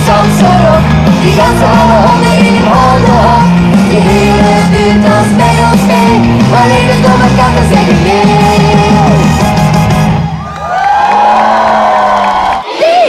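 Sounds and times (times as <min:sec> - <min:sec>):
woman singing into microphone: 0:00.0 - 0:09.2
pop song over sound system: 0:00.0 - 0:10.2.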